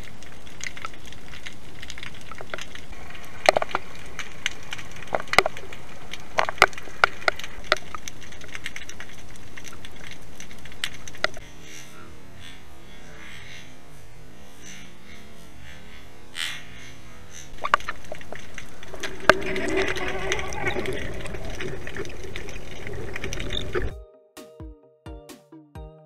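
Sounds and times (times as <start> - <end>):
sharp underwater clicks and pops: 0.0 - 11.4, 17.5 - 23.9
steady underwater hiss: 0.0 - 23.9.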